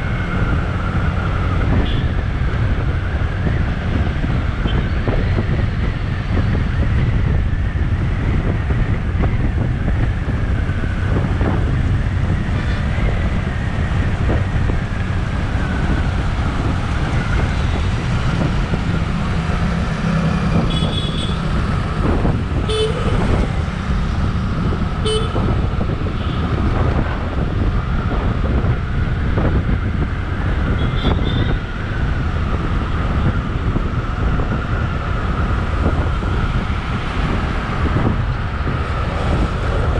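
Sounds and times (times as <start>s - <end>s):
wind rumble on microphone: 0.0s - 39.9s
vehicle horn toots: 20.7s - 21.4s, 22.7s - 23.1s, 25.0s - 25.5s.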